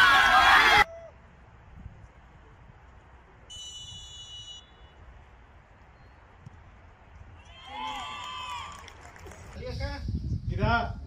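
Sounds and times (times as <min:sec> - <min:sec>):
referee's whistle: 0:03.5 - 0:05.0.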